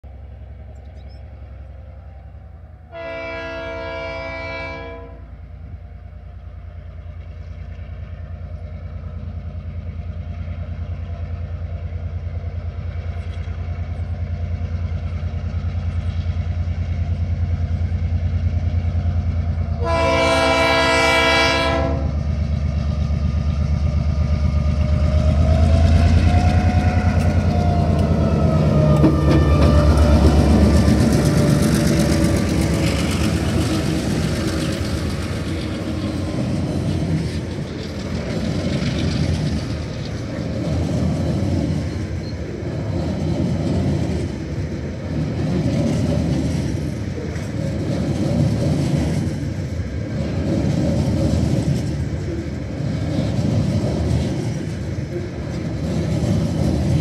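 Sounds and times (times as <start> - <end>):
rail noise: 0.0 - 57.0
locomotive air horn: 2.9 - 5.3, 19.8 - 22.2
diesel engine rumble: 22.0 - 57.0.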